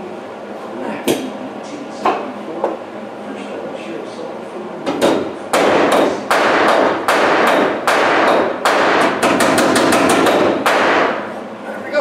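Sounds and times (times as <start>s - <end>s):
hammer striking sheet metal: 4.9s - 11.3s.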